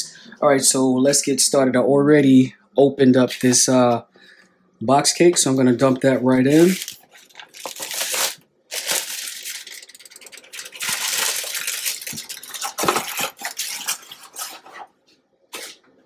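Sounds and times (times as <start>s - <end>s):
bag crinkling: 6.5s - 14.9s.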